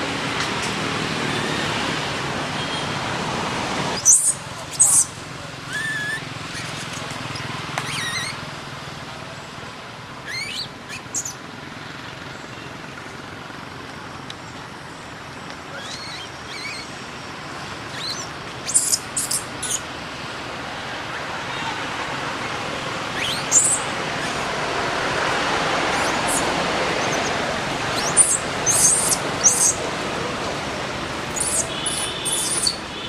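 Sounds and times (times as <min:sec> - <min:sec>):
steady outdoor hiss: 0:00.0 - 0:33.0
infant monkey squealing: 0:04.0 - 0:08.4, 0:10.2 - 0:11.3, 0:15.7 - 0:16.9, 0:17.9 - 0:19.8, 0:23.1 - 0:24.5, 0:25.9 - 0:29.8, 0:31.3 - 0:32.9.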